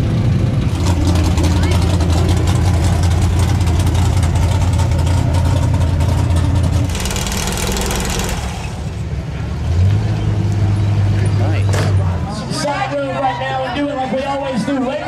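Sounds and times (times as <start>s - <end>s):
pickup engine idling: 0.1s - 9.6s.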